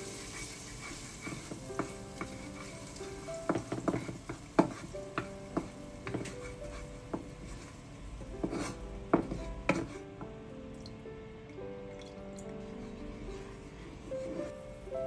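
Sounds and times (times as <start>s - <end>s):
paste frying in oil: 0.0s - 10.1s
wooden spatula scraping pan: 0.0s - 10.1s, 12.6s - 14.8s
wood knocking against pan: 3.4s - 7.6s, 8.4s - 10.3s.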